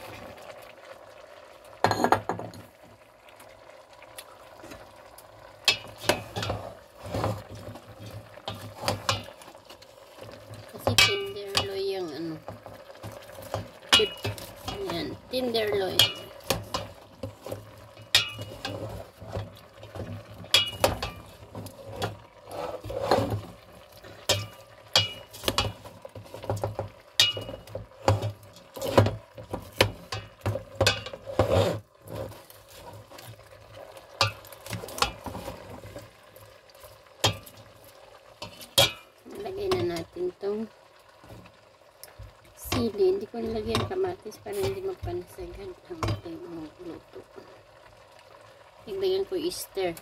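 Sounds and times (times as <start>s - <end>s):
spoon scraping a steel pot: 5.7s - 9.4s, 13.1s - 33.3s.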